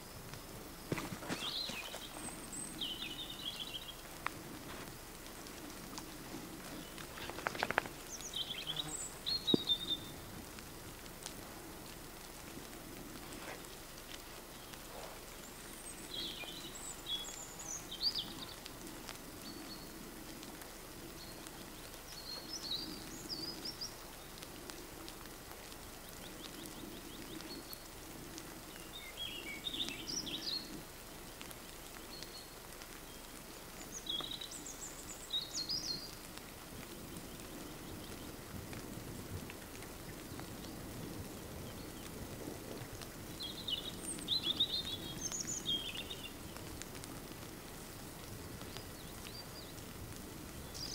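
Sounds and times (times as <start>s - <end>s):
songbird singing: 0.0s - 50.9s.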